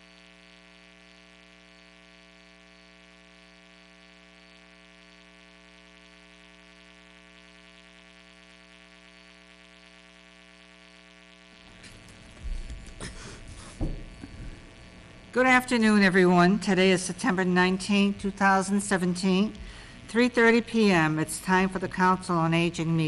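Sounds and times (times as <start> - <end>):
electrical mains hum: 0.0 - 23.0
knocks and thump: 13.6 - 14.6.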